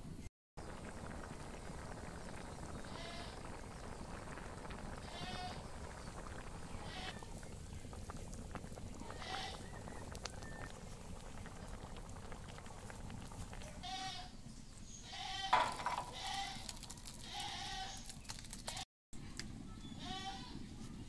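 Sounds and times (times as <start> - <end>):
livestock bleating: 9.1 - 9.6, 13.8 - 14.3, 15.0 - 18.0, 20.0 - 20.5.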